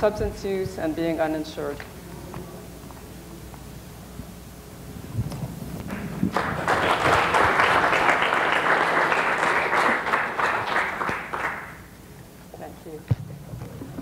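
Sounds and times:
audience applauding: 5.9 - 11.9.

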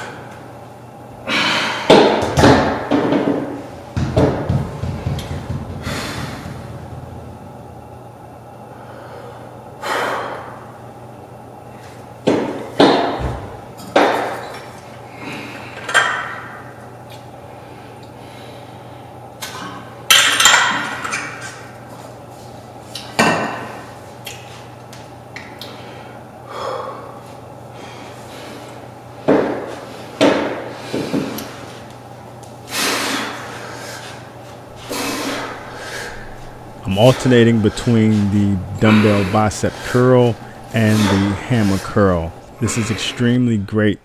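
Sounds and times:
dumbbells knocking and clinking: 1.9 - 7.2.

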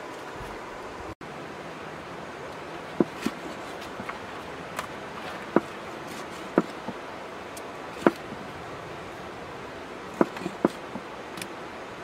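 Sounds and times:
cleaver chopping on wooden block: 3.0 - 3.5, 5.5 - 7.0, 8.0 - 8.2, 10.1 - 11.1.

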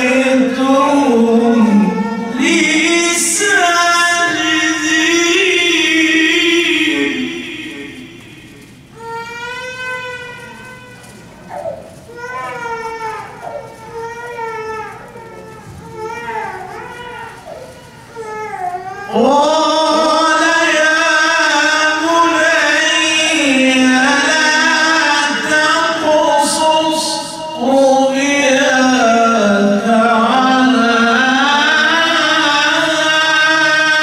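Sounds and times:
man reciting melodically: 0.0 - 9.1, 18.9 - 34.0.

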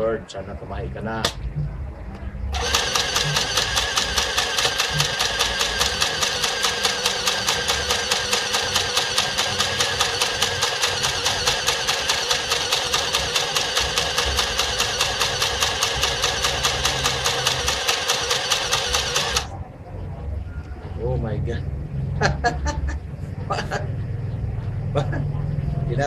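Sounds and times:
sewing machine chattering: 2.6 - 19.5.

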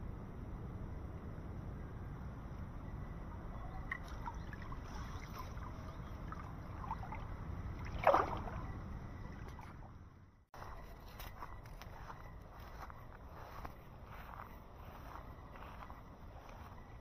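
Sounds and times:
stream water splashing: 3.9 - 10.0
hand net sweeping through water: 7.8 - 8.6.

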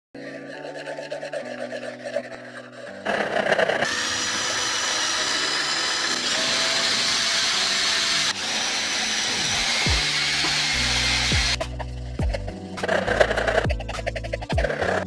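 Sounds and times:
paintbrush swishing thick paint: 0.5 - 3.8.

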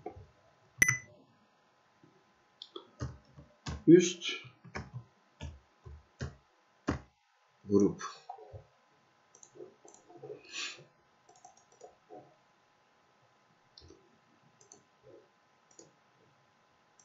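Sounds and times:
computer mouse clicks: 9.3 - 10.2, 11.3 - 12.2, 13.8 - 14.0, 14.6 - 14.9, 15.7 - 16.0.

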